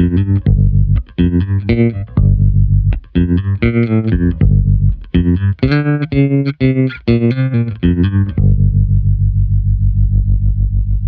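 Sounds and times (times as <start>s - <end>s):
pulsing low bass note: 0.0s - 6.8s, 7.7s - 11.0s
plucked bass guitar notes: 0.0s - 11.0s.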